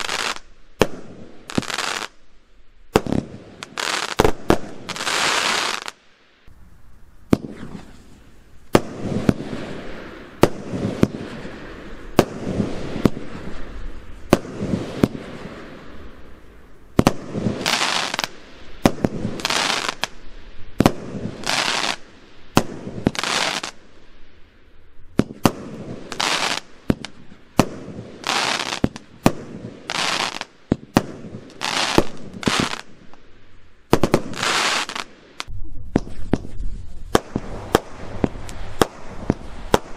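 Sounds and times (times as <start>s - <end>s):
fireworks bangs: 0.0s - 2.2s, 2.9s - 6.0s, 7.3s - 16.3s, 16.9s - 23.8s, 25.1s - 33.2s, 33.9s - 39.9s.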